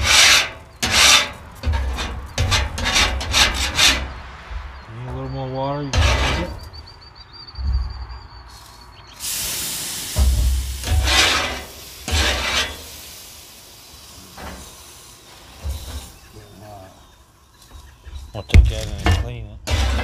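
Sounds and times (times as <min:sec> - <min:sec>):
metal scraper rasping: 0:00.0 - 0:04.2, 0:05.9 - 0:06.6, 0:10.8 - 0:12.8, 0:18.6 - 0:20.0
water sizzling on hot griddle: 0:09.2 - 0:16.5.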